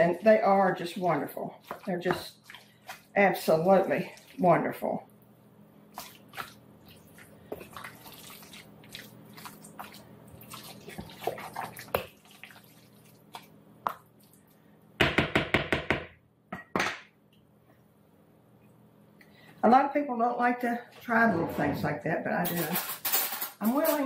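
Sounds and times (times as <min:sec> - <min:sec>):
spoon squishing potato salad: 0:00.4 - 0:04.8, 0:05.9 - 0:14.6.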